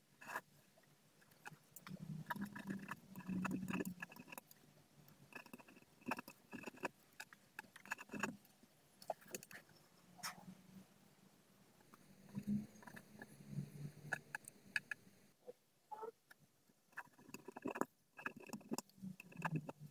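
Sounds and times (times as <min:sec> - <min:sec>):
ballpoint pen writing on paper: 0:07.8 - 0:08.3.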